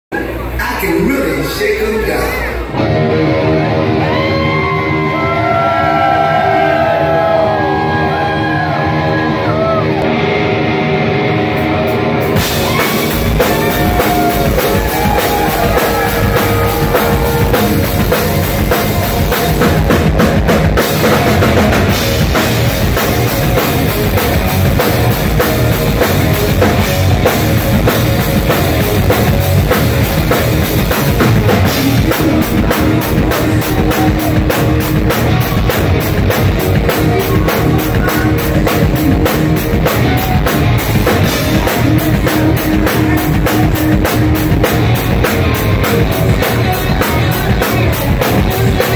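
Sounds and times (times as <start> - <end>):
live rock band: 0.2 - 48.9
electric guitar bending notes: 2.5 - 48.9
drum kit: 11.5 - 48.9.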